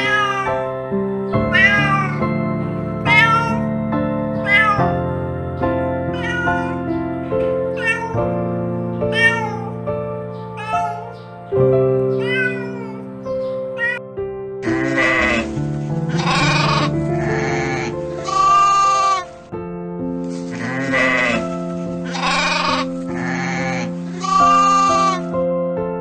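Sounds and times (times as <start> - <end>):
cats meowing: 0.0 - 2.4, 3.0 - 3.8, 4.4 - 5.2, 5.9 - 11.4, 12.0 - 14.0, 14.6 - 19.3, 20.5 - 25.4
background music: 0.0 - 26.0
goats bleating: 14.6 - 19.3, 20.5 - 21.5, 22.1 - 25.2.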